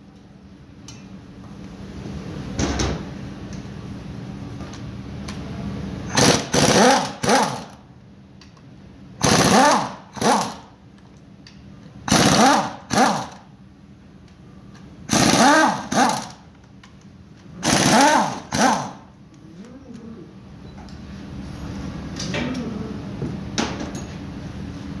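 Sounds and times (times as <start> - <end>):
pneumatic wrench spinning bolts: 6.1 - 7.8, 9.2 - 10.7, 12.1 - 13.4, 15.1 - 16.4, 17.6 - 19.0.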